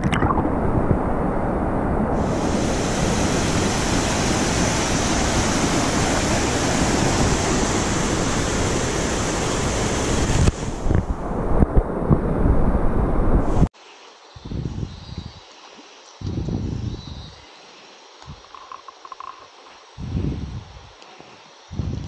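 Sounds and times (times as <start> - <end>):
stream rushing over rapids: 0.4 - 13.7.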